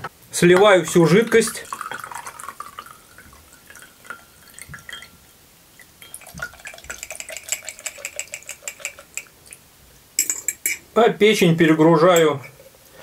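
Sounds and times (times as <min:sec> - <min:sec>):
liquid trickling and dripping into bowl: 0:00.6 - 0:09.6
metal fork clinking on glass jar: 0:04.9 - 0:05.2, 0:06.0 - 0:09.3, 0:10.2 - 0:10.8.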